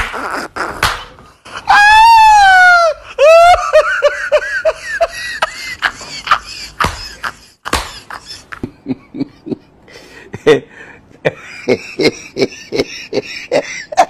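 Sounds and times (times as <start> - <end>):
person laughing: 2.7 - 9.7, 11.3 - 14.0.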